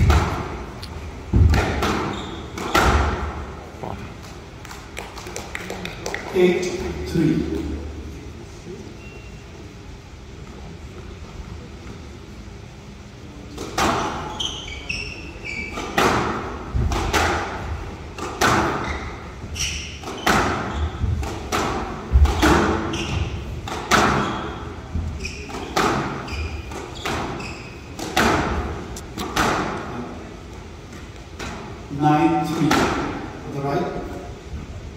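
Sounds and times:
squash ball hitting walls: 0:00.0 - 0:03.5, 0:15.7 - 0:19.0, 0:19.7 - 0:29.9
shoes squeaking on court: 0:01.6 - 0:03.2, 0:14.0 - 0:16.2, 0:18.6 - 0:21.2, 0:22.4 - 0:29.0.

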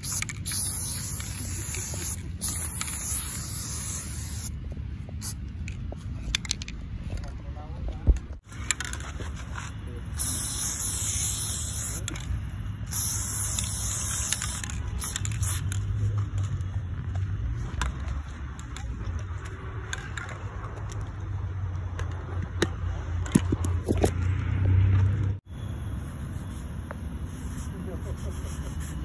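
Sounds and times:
spray paint can hissing: 0:00.0 - 0:04.6, 0:10.1 - 0:16.0, 0:26.0 - 0:29.0.

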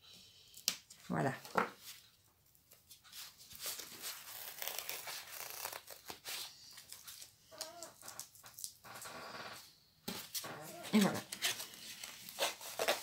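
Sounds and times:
plastic wrapping crinkling and tearing: 0:03.6 - 0:09.1, 0:10.4 - 0:13.0.

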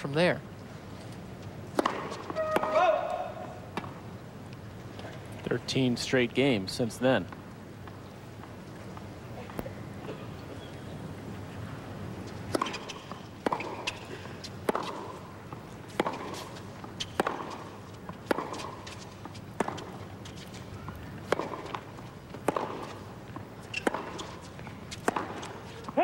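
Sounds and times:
tennis balls struck by racquets: 0:01.6 - 0:04.1, 0:12.4 - 0:26.0.

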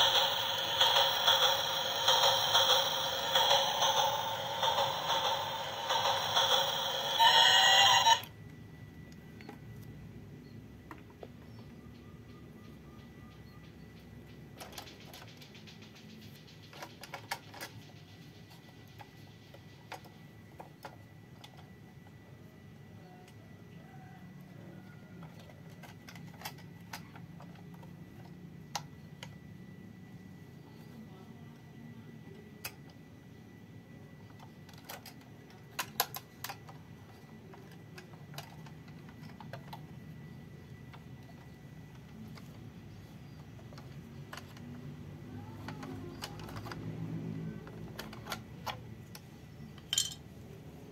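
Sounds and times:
plastic toy train clicking: 0:00.0 - 0:08.3, 0:14.6 - 0:21.7, 0:25.2 - 0:27.9, 0:34.3 - 0:40.0, 0:43.4 - 0:50.2.

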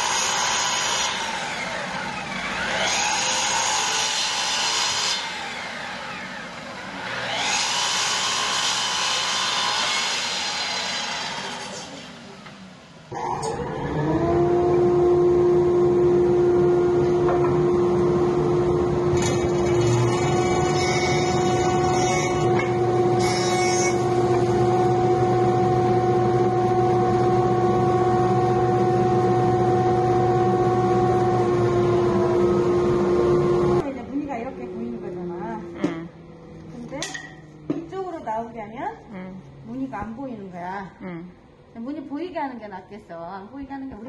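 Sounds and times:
jointer whining: 0:10.8 - 0:33.8.

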